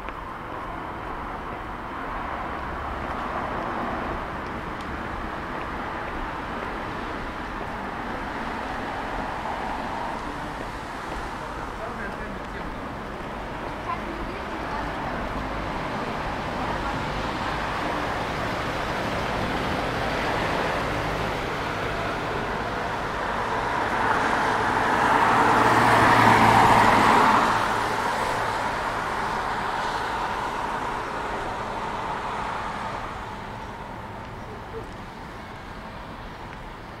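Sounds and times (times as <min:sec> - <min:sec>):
steady road noise: 0:00.0 - 0:37.0
vehicle passing close: 0:14.4 - 0:36.3.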